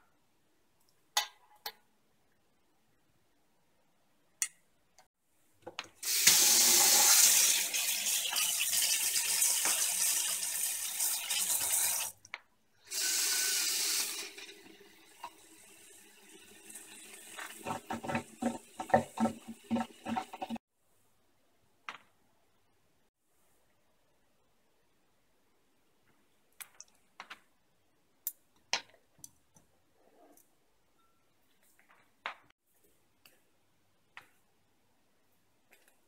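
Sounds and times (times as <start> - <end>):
tap water splashing into sink: 17.2 - 20.6.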